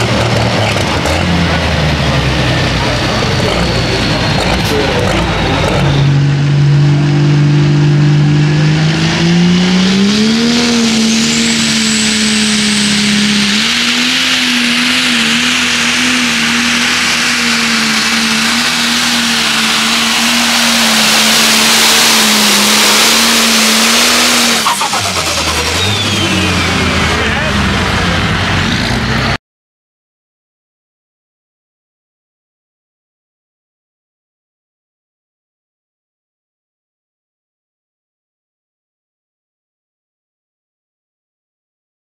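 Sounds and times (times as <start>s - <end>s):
tractor diesel engine at full throttle: 0.0s - 29.4s.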